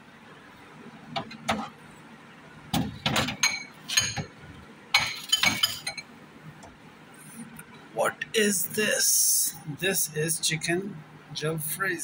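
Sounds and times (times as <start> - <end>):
ceramic and glass dishes clinking: 3.1 - 4.3, 5.0 - 6.1.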